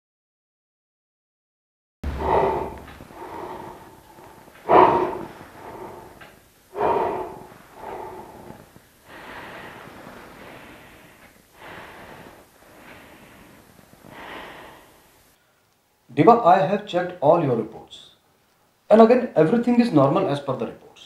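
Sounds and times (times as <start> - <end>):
woman gasping and breathing heavily: 2.1 - 9.8.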